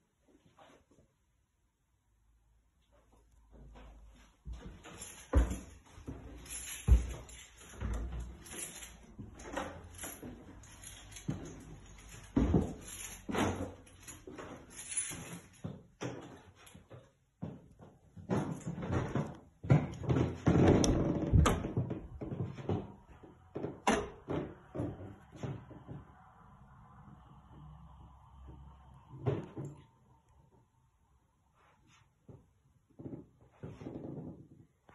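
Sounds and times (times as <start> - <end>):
footsteps on wooden stairs: 3.5 - 10.5
door being pushed open: 20.3 - 22.1.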